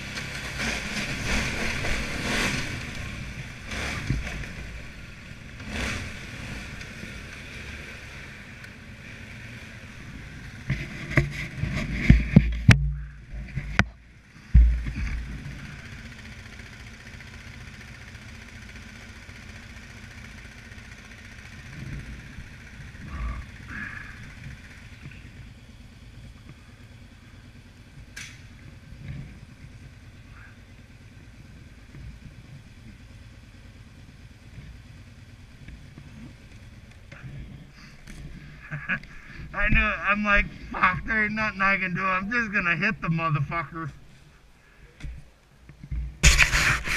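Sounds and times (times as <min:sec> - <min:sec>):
atv engines idling: 0:00.0 - 0:46.9
loud knocks and bumps: 0:11.1 - 0:15.3.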